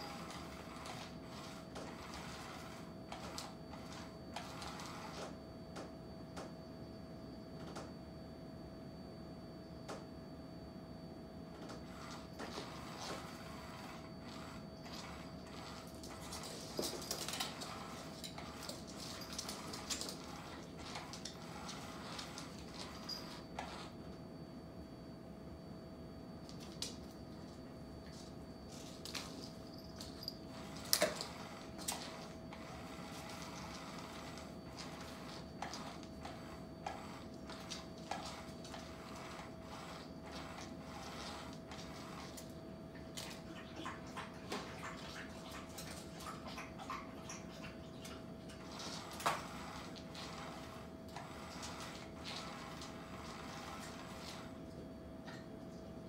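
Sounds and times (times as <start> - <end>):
small motor whirring: 11.9 - 24.0, 29.8 - 42.4, 48.7 - 54.6.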